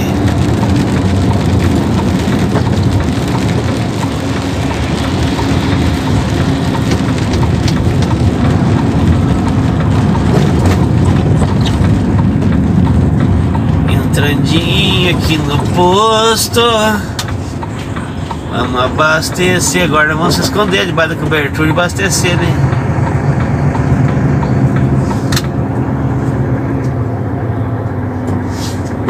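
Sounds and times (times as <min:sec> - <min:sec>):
rain ticking on windscreen: 0:00.0 - 0:28.4
truck diesel engine running: 0:00.0 - 0:29.0
tyre noise on wet road: 0:00.0 - 0:29.0.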